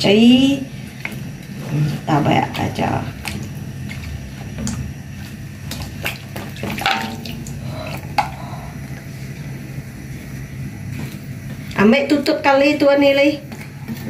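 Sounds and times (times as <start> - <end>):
steady low hum: 0.0 - 14.0
pieces plopping into liquid: 5.8 - 7.6.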